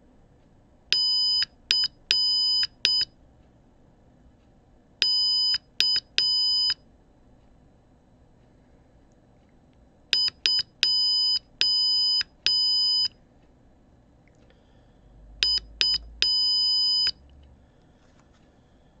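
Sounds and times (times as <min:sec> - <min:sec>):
buzzer beeping: 0:01.0 - 0:03.1, 0:05.0 - 0:06.8, 0:10.2 - 0:13.1, 0:15.4 - 0:17.2.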